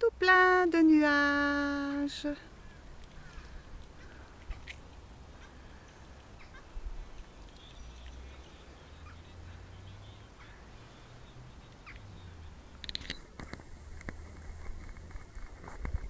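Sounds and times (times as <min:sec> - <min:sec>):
faint bird calls: 0:02.4 - 0:13.3
wind rumbling on microphone: 0:11.2 - 0:16.0.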